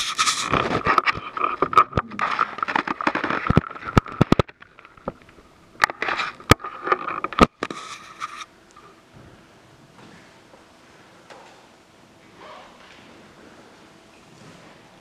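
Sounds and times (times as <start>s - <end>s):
paper rustling: 0.0s - 4.6s, 5.8s - 8.5s.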